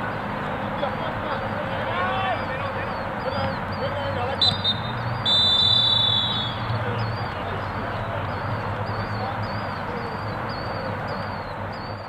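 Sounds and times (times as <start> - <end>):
outdoor background noise: 0.0 - 12.0
faint high chirp: 2.4 - 12.0.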